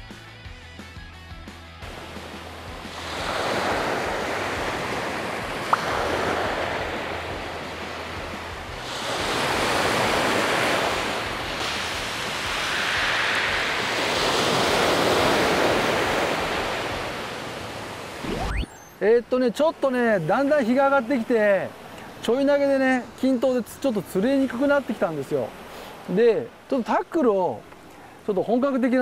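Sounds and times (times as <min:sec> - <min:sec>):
waves washing on pebbly beach: 0:01.9 - 0:18.2.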